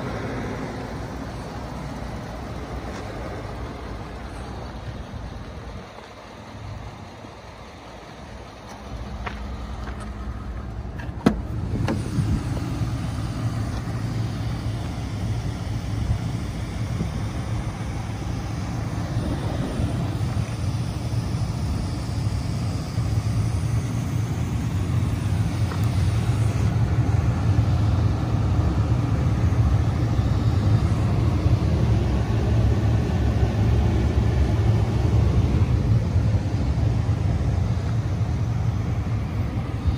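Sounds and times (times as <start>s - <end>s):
pickup engine idling: 0.0s - 39.9s.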